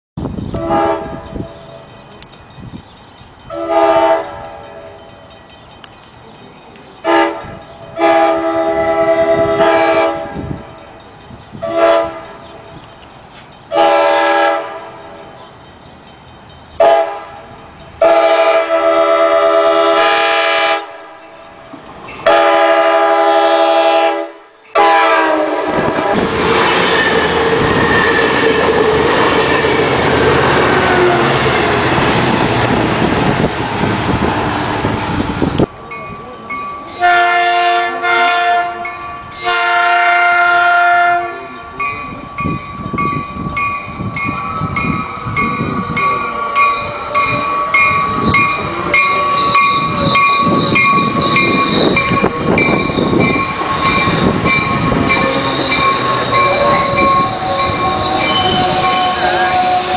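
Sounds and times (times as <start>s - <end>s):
train wheel and rail noise: 0.2s - 59.9s
train horn blasts: 0.5s - 1.6s, 3.5s - 5.0s, 7.0s - 10.6s, 11.6s - 12.6s, 13.7s - 15.1s, 16.8s - 21.1s, 22.2s - 33.4s, 36.9s - 41.7s, 49.2s - 59.9s.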